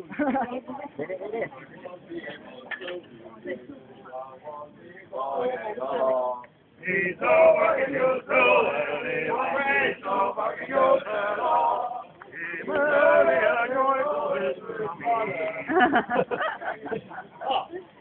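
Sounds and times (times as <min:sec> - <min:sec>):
crowd singing: 0:04.0 - 0:17.2.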